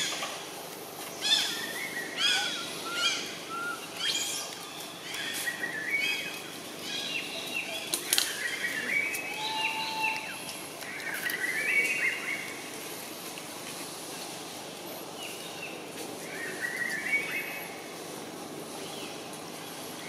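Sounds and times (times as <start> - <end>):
birds chirping: 0.0 - 13.1
steady outdoor hiss: 0.0 - 20.0.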